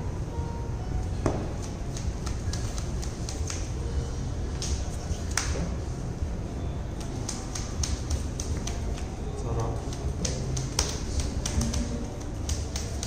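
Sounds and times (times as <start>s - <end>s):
low background hum: 0.0s - 13.0s
cards clicking and tapping: 1.3s - 3.7s, 7.0s - 13.0s.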